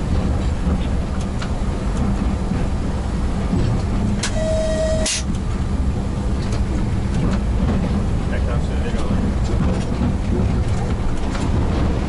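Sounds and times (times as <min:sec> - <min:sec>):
train running gear rumbling: 0:00.0 - 0:12.0
short steady beep: 0:04.2 - 0:05.2.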